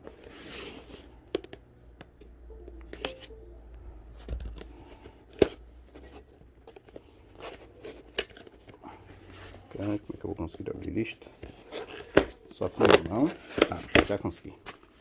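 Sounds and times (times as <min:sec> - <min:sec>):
cardboard clicks scrapes and rustles: 0:00.0 - 0:01.5.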